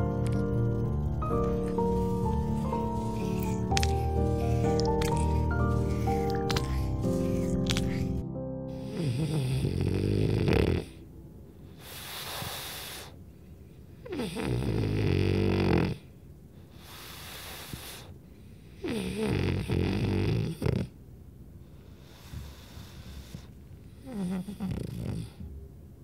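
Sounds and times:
dog snoring: 0:00.0 - 0:11.0, 0:11.8 - 0:13.2, 0:14.0 - 0:16.1, 0:16.7 - 0:18.1, 0:18.7 - 0:21.0, 0:21.8 - 0:25.6
airy hiss of breath: 0:01.2 - 0:08.2, 0:11.7 - 0:13.2, 0:16.6 - 0:18.6.

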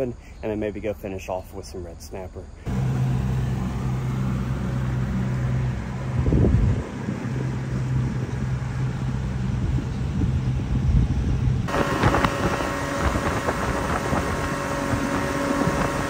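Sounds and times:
boat engine running: 0:02.7 - 0:16.0
wind and water rush: 0:04.7 - 0:16.0.

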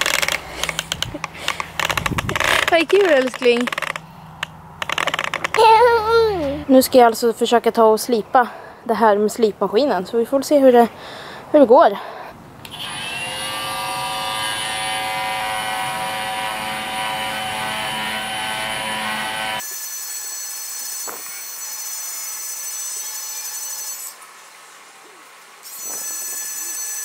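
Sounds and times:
power sander whining: 0:12.7 - 0:19.6.

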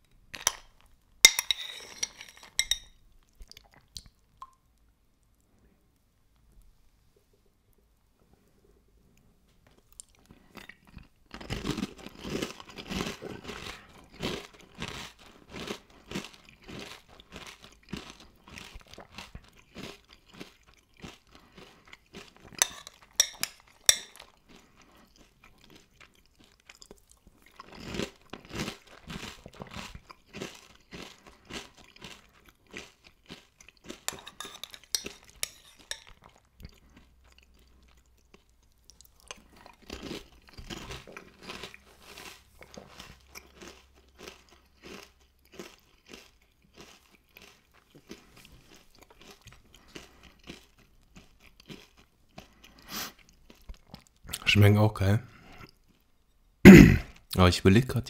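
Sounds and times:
chewing crunchy cereal: 0:00.0 - 0:05.6, 0:09.2 - 0:54.6, 0:55.3 - 0:56.4.

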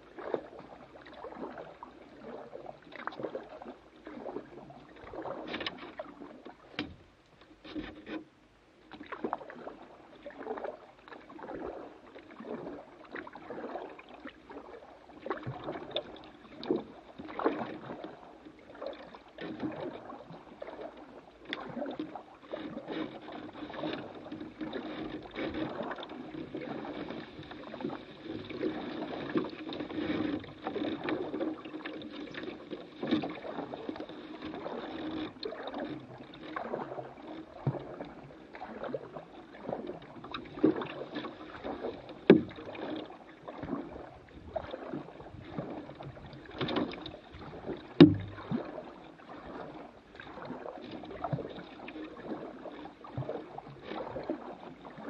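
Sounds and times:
paddle splashing water: 0:00.0 - 0:55.0
paddle knocking on hull: 0:02.9 - 0:08.3, 0:19.4 - 0:55.0.

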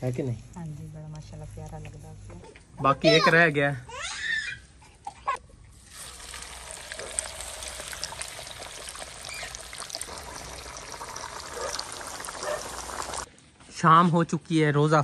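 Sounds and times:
chicken deep-frying sizzle: 0:05.8 - 0:13.3.

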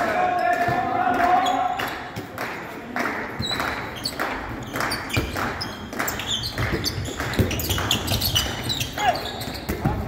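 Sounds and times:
shoes squeaking on court: 0:03.4 - 0:10.0
ball bouncing on floor: 0:04.8 - 0:08.9.

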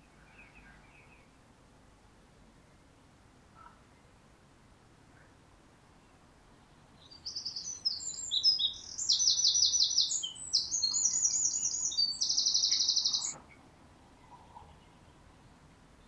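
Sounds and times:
wren singing: 0:07.0 - 0:13.4.

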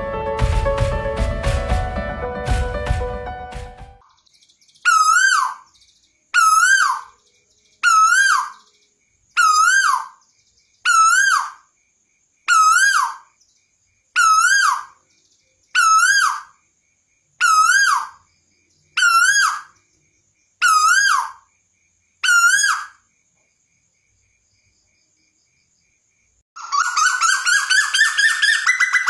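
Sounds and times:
bird whistled call: 0:04.8 - 0:05.7, 0:06.4 - 0:07.2, 0:07.8 - 0:08.7, 0:26.6 - 0:29.0.

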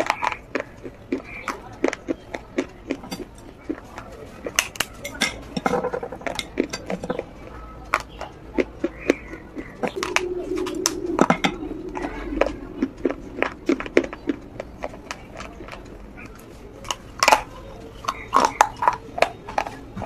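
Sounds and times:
low hum: 0:09.8 - 0:16.8.

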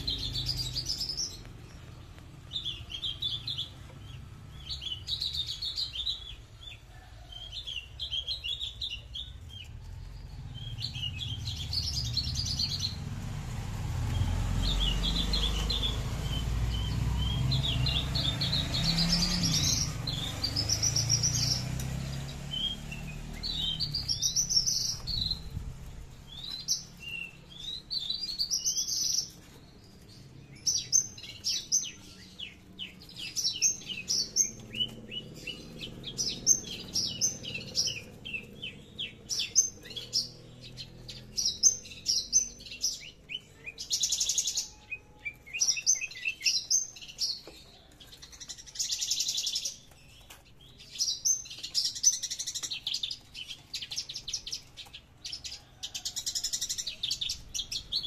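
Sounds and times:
lark singing chirps and trills: 0:00.0 - 0:13.0, 0:14.1 - 0:58.0.

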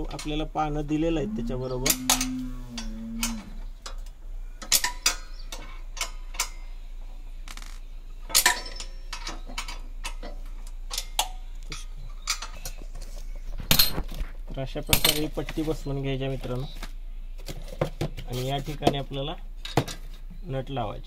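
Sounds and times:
spanner clinking on bolts: 0:01.9 - 0:06.6, 0:08.3 - 0:12.8.

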